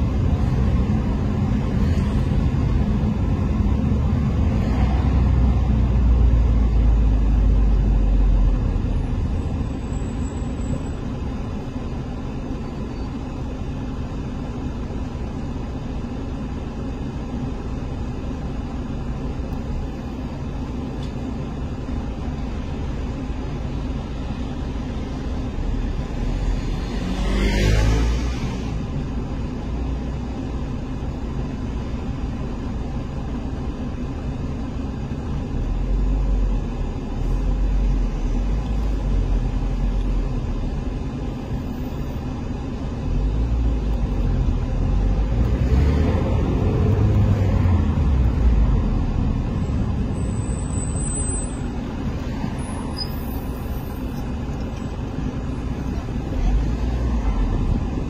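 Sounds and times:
road traffic rumble: 0.0 - 58.0
vehicle passing close by: 26.3 - 28.7.

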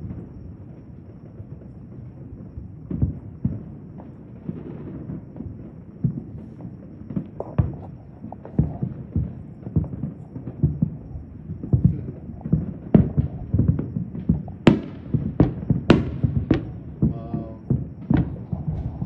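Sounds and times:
distant fireworks booms and pops: 0.0 - 19.0
sharp firework cracks: 2.2 - 19.0.

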